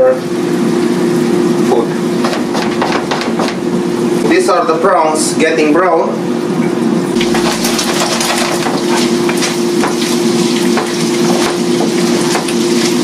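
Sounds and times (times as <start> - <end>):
steady hum: 0.0 - 13.0
prawns sizzling in a frying pan: 7.2 - 13.0.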